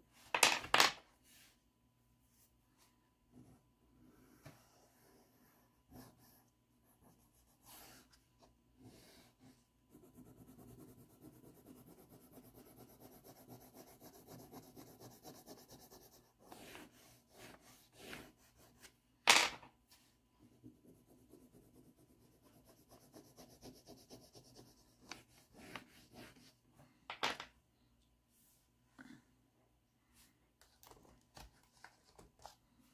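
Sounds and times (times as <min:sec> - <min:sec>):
pastel rubbing on paper: 0:09.9 - 0:18.9, 0:20.6 - 0:26.5.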